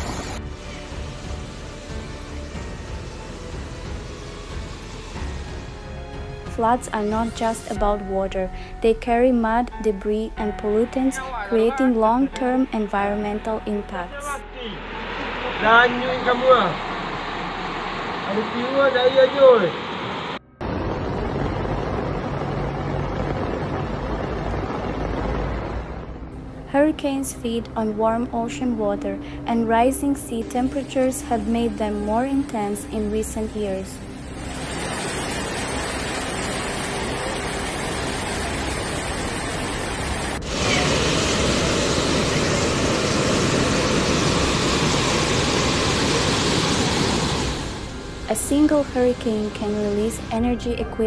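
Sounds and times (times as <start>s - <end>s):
low hum: 0.0s - 51.0s
floodwater rushing: 34.0s - 50.2s.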